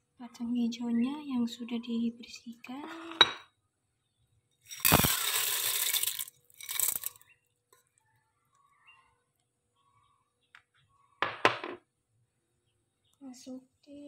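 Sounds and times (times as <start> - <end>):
beans pouring into a pot: 4.7 - 7.3.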